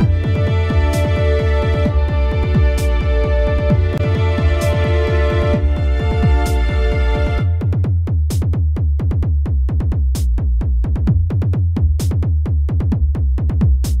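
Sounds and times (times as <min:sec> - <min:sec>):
electronic dance music: 0:00.0 - 0:08.4.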